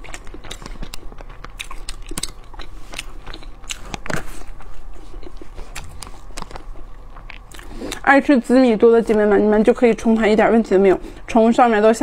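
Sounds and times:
person chewing soft bread: 0.0 - 8.0.

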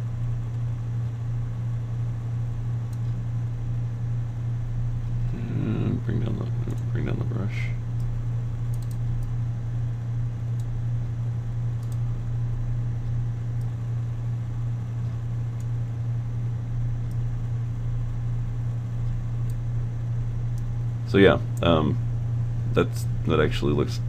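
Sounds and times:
low hum: 0.0 - 24.0
faint clicks: 8.7 - 9.3, 11.8 - 12.0.

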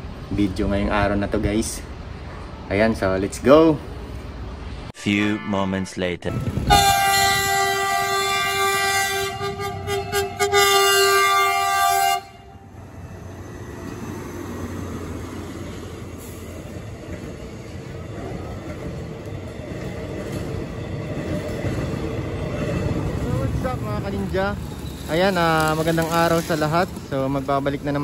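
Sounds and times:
train horn blast: 5.0 - 12.5
train rolling past: 6.2 - 28.0.

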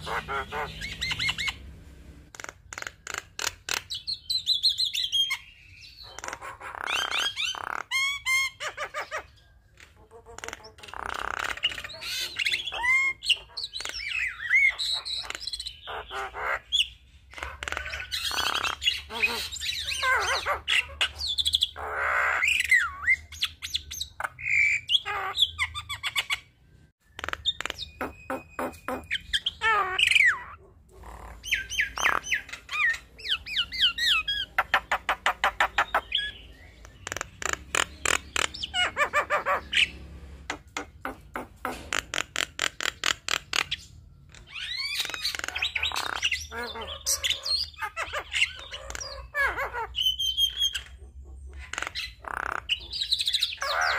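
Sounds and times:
bird clicking chatter: 2.3 - 4.0, 36.8 - 38.6.

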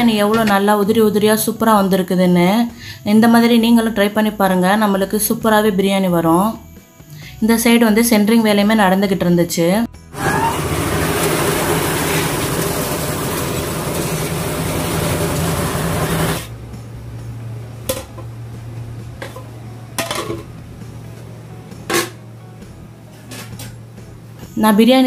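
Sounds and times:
concrete mixer running: 10.1 - 16.6
bucket hoist running: 10.2 - 16.5
steady hum: 12.4 - 24.5
metal pots knocking: 17.8 - 18.3, 19.2 - 20.6, 21.8 - 22.2.

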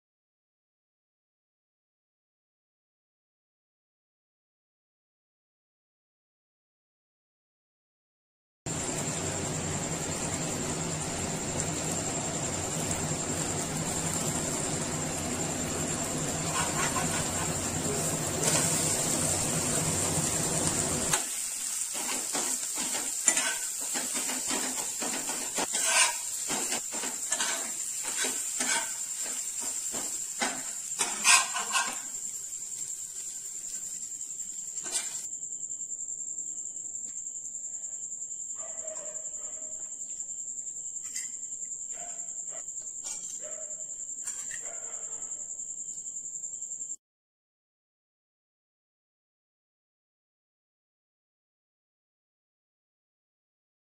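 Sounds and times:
food sizzling in pan: 8.7 - 35.4.

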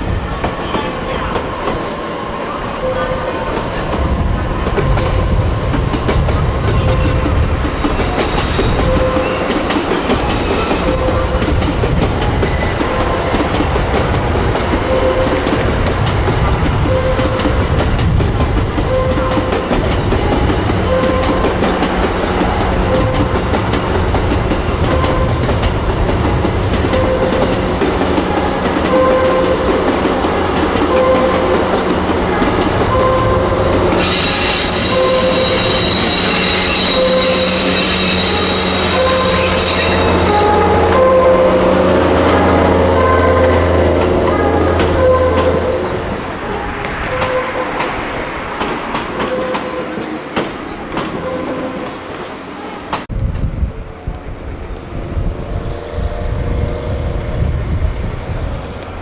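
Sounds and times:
high-pitched wheel squeal: 6.9 - 11.2, 28.9 - 29.9, 33.9 - 41.3.

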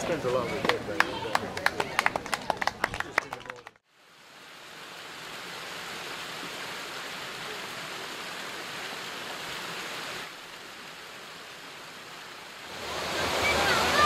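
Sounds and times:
flowing river water: 3.8 - 14.0
water rushing down a stone weir: 12.6 - 14.0.

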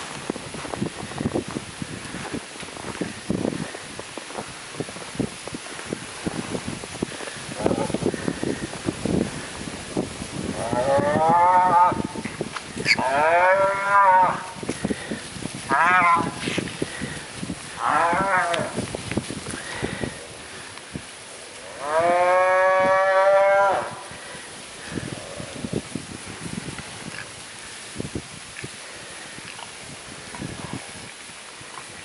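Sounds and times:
cattle mooing: 10.6 - 12.0, 12.9 - 14.5, 17.8 - 18.8, 21.6 - 24.0.

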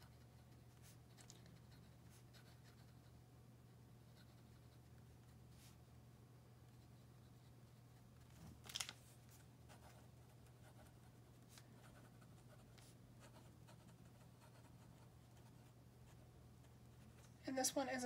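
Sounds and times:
pen nib scratching on paper: 4.1 - 5.7.

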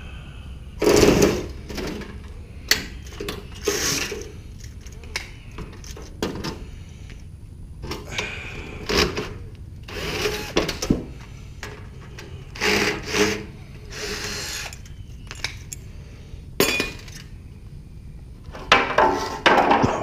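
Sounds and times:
cordless drill spinning: 9.9 - 10.6, 12.6 - 15.0.

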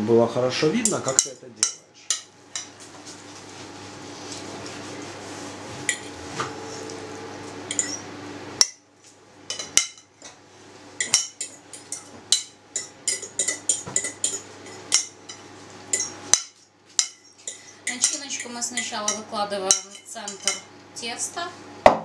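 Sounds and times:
steady low hum: 0.0 - 21.9
metal spoon scraping ceramic bowl: 7.7 - 8.0.

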